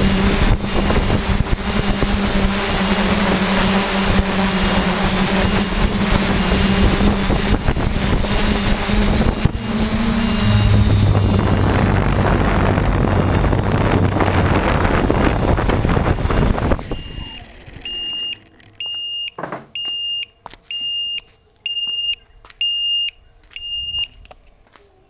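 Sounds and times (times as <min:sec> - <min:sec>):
wind on microphone: 0:00.0 - 0:17.4
drone motors and propellers: 0:00.0 - 0:19.2
piezo buzzer beeping: 0:00.0 - 0:24.2.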